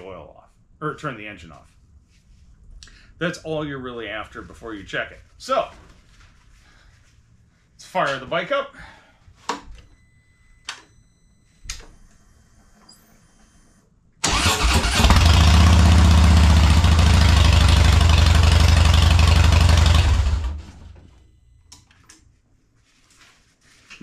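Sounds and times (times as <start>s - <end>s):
motorcycle engine starting and idling: 14.2s - 21.0s.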